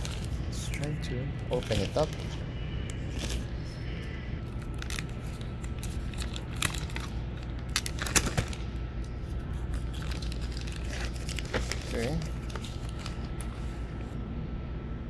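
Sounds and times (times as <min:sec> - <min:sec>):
steady low hum: 0:00.0 - 0:15.0
plastic bag crinkling: 0:01.5 - 0:08.8, 0:09.4 - 0:13.8.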